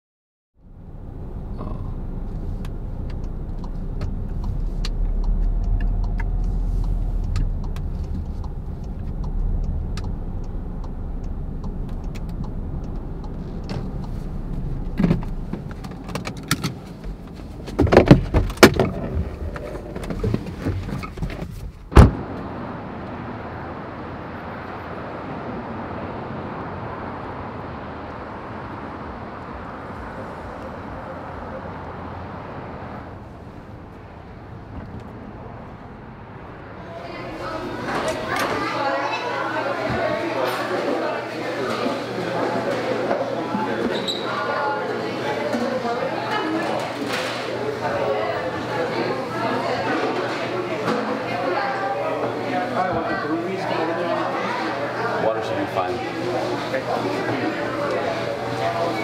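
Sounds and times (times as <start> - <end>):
car engine and road noise: 0.6 - 42.2
car door slamming shut: 21.9 - 22.3.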